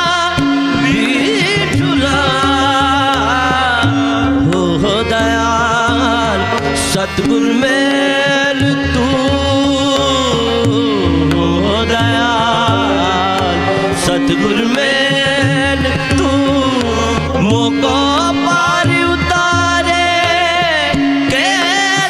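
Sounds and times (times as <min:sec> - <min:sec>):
harmonium: 0:00.0 - 0:22.0
man singing ornamented phrases: 0:00.0 - 0:22.0
tabla: 0:00.0 - 0:22.0.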